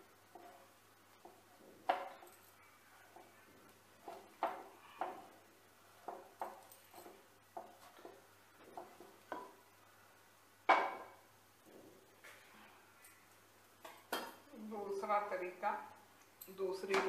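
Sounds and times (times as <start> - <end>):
frying pan clattering on grate: 10.7 - 11.2.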